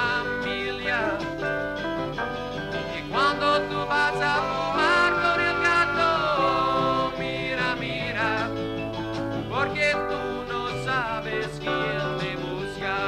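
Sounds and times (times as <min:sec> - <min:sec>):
acoustic guitar strumming: 0:00.0 - 0:13.0
person singing long held notes: 0:02.8 - 0:08.6.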